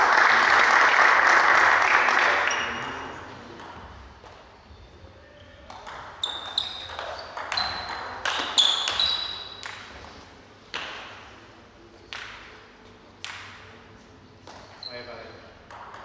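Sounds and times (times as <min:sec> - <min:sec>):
table tennis ball pinging: 0:02.8 - 0:04.0, 0:05.7 - 0:11.0, 0:12.1 - 0:12.6, 0:15.6 - 0:16.0
table tennis ball knocks: 0:15.7 - 0:16.0.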